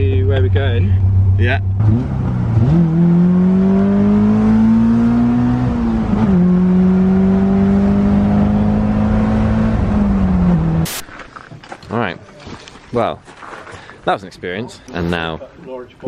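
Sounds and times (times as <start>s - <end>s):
car engine driving: 0.0s - 11.1s.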